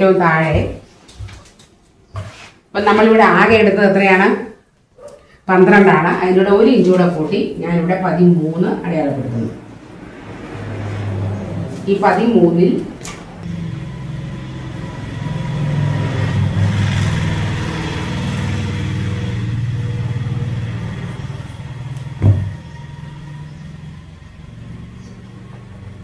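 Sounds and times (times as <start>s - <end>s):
vehicle engine hum passing by: 8.9s - 26.0s.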